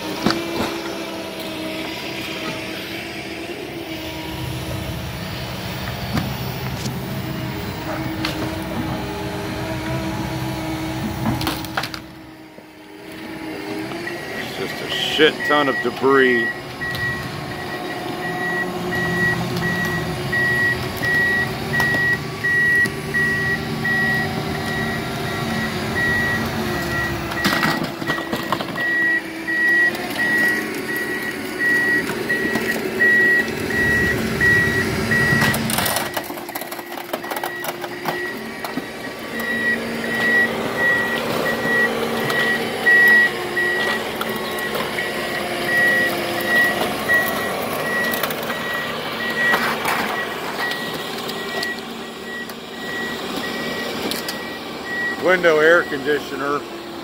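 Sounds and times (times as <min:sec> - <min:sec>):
heavy machine engine running: 0:00.0 - 0:57.0
back-up alarm beeping: 0:14.0 - 0:56.7.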